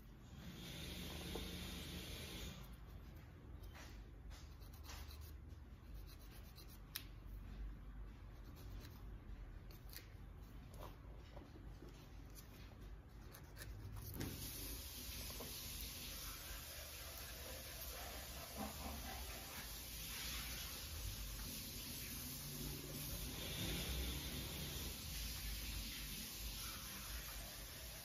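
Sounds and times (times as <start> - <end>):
steady hiss: 0.3 - 2.7, 14.2 - 28.0
nail file rasping: 4.4 - 7.2, 8.4 - 10.1.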